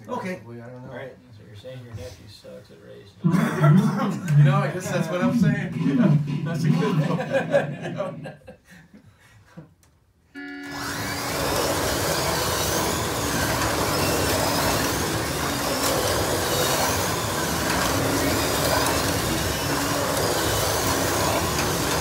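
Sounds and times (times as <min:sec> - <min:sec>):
slot car motors whining: 0:03.3 - 0:08.3, 0:10.4 - 0:22.0
cars running in slots: 0:10.7 - 0:22.0.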